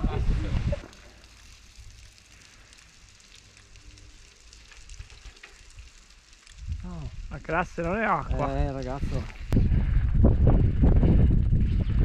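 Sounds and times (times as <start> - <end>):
wind rumble on microphone: 0.0 - 0.9, 4.9 - 12.0
tyres crackling on gravel: 0.7 - 9.6.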